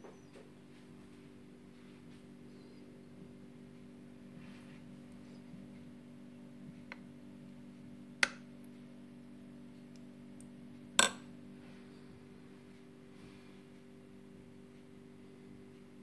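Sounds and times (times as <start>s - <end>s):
steady low hum: 0.0s - 16.0s
spoon clinking ceramic dish: 11.0s - 11.2s.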